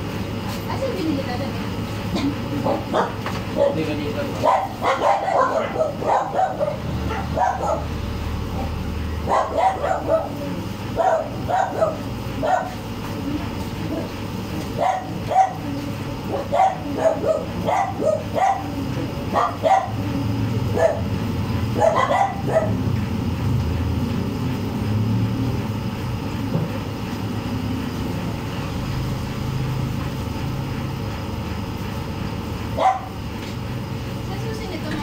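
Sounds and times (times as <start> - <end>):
dog barking: 2.6 - 8.0, 8.6 - 12.8, 14.8 - 15.7, 16.3 - 21.1, 21.7 - 22.8, 32.8 - 33.2.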